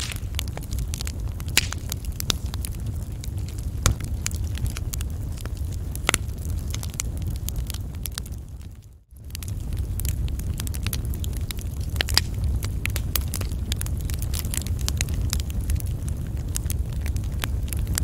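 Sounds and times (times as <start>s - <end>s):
loud fire pops: 0.0s - 18.0s
wood fire crackling: 0.0s - 18.0s.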